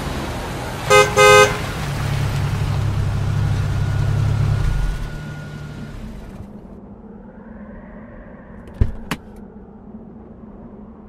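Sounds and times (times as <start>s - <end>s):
car engine humming: 0.0s - 7.1s
car horn honking: 0.9s - 1.8s.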